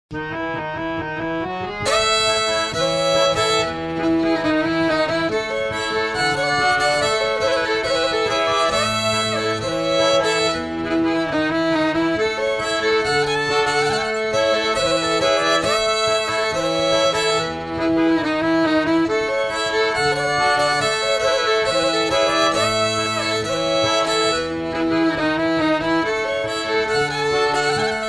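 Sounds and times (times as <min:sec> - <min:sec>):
fiddle melody: 0:00.1 - 0:28.0.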